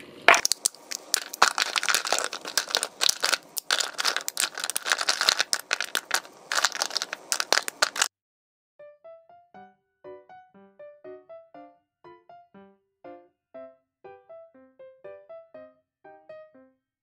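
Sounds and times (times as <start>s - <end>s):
chocolate bars snapping: 0.3s - 8.1s
chocolate pieces clicking in bowl: 0.3s - 8.1s.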